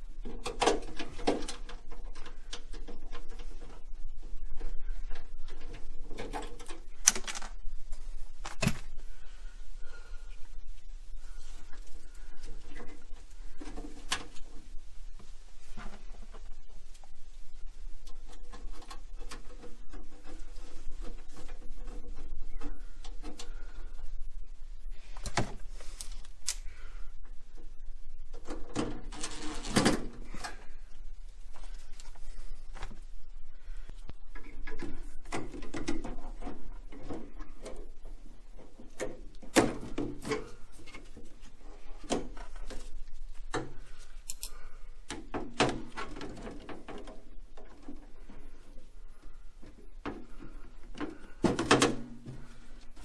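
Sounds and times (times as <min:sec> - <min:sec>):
pliers and tubing clicking and rattling: 0:44.2 - 0:44.6.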